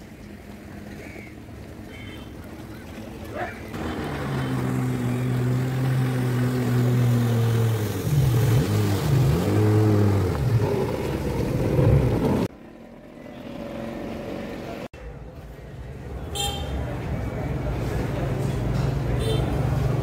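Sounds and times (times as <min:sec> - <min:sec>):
jet ski engine: 0:00.0 - 0:14.9.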